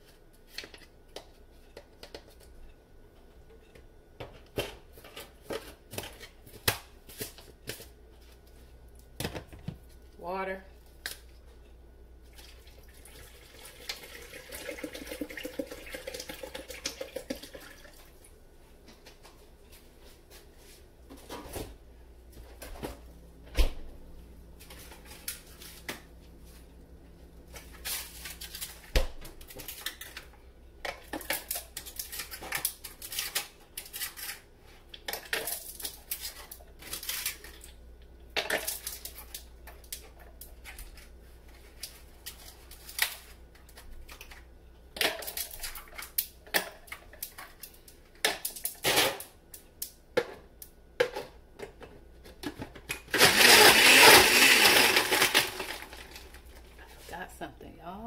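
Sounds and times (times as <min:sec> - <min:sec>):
water pouring into blender jar: 0:12.3 - 0:18.1.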